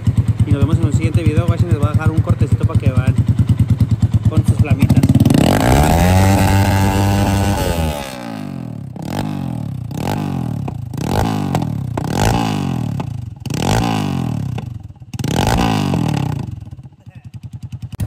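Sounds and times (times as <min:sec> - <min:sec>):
motorcycle engine revving: 0:00.0 - 0:18.0.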